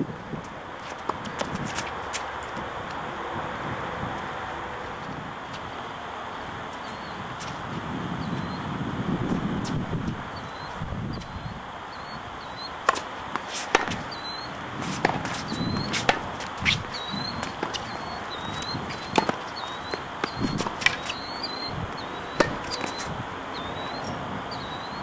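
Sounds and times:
light wind: 0.0s - 25.0s
tennis balls struck and bouncing: 0.8s - 2.8s, 12.6s - 23.2s.

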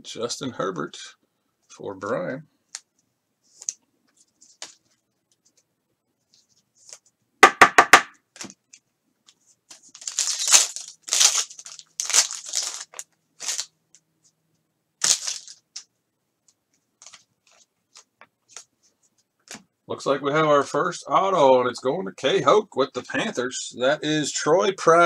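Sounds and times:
foil wrapper tearing and crinkling: 9.8s - 13.7s, 15.0s - 15.8s.

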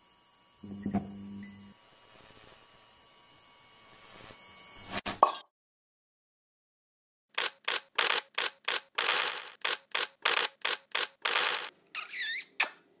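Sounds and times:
camera shutter clicks: 7.4s - 11.7s.

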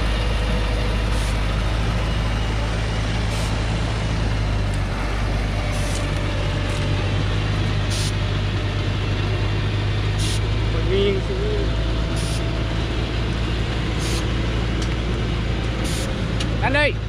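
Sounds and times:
diesel truck engine running: 0.0s - 17.0s
short hisses: 12.2s - 12.4s, 14.0s - 14.3s.

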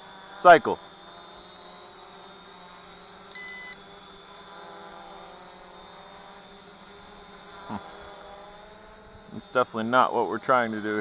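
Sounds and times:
drone propellers whining: 0.0s - 11.0s
short electronic beep: 3.3s - 3.8s.

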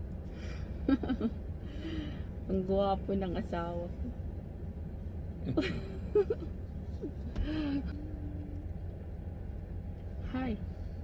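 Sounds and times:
car cabin rumble: 0.0s - 11.0s
person humming: 7.8s - 8.6s.

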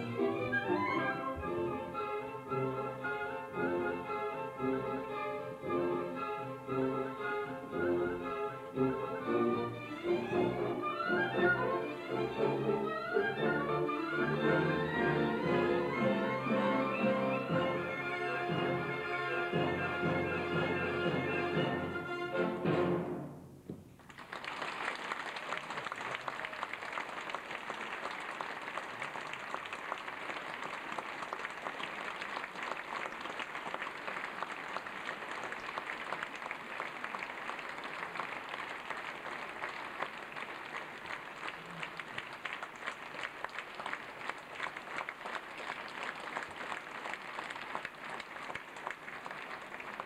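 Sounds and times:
audience applauding: 23.9s - 50.0s.

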